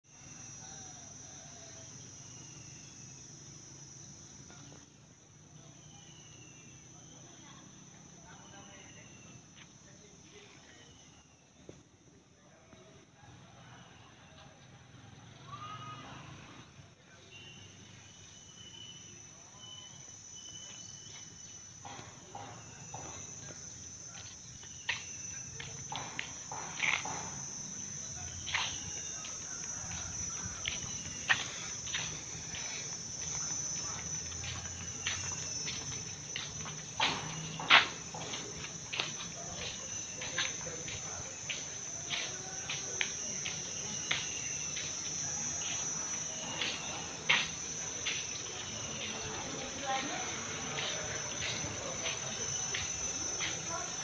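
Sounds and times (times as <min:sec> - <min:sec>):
insects droning: 0:00.0 - 0:54.0
footsteps on tiled floor: 0:20.5 - 0:54.0.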